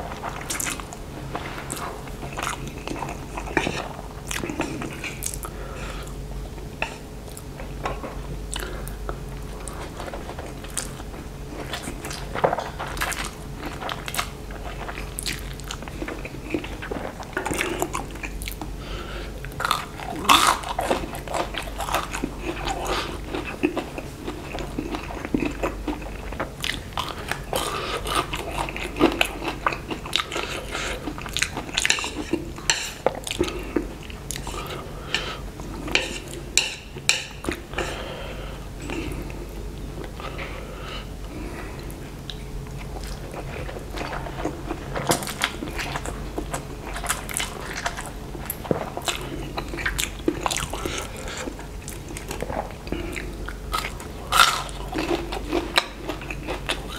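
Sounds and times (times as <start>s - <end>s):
chewing noodles: 8.5s - 18.7s, 19.4s - 34.8s, 42.3s - 56.9s.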